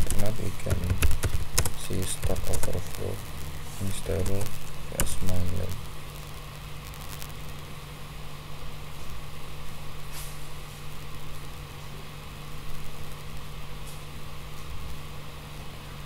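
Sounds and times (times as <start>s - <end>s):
microphone hum and hiss: 0.0s - 16.0s.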